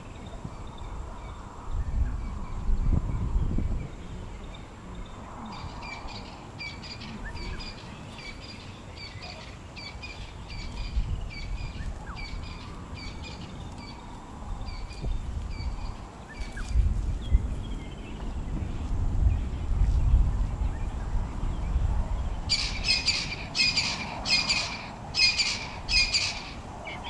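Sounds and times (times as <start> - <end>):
bird chirping: 20.7 - 27.0.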